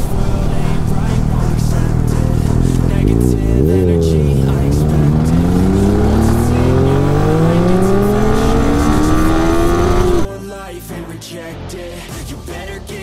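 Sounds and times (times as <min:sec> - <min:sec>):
motorcycle engine accelerating: 0:00.0 - 0:10.3.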